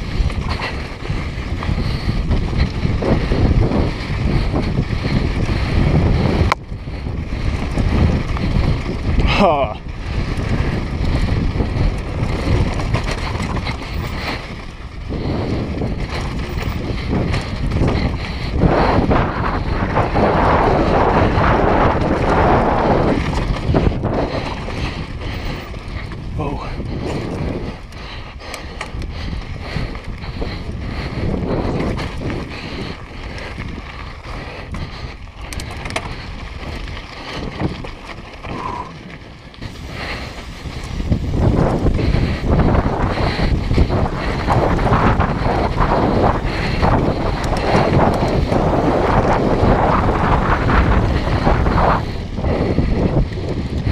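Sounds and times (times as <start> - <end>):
bike clattering over bumps: 0.0 - 53.9
wind buffeting microphone: 0.0 - 53.9
tyres crunching over gravel: 7.2 - 52.7
tyres crunching over rock: 35.3 - 41.9.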